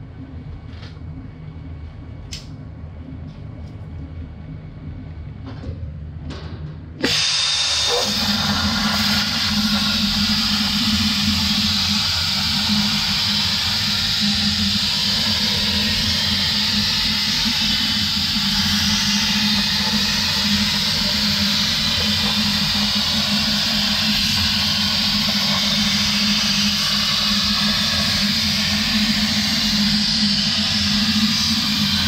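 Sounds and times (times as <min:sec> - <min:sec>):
low hum: 0:00.0 - 0:32.0
plasma torch hissing: 0:07.0 - 0:32.0.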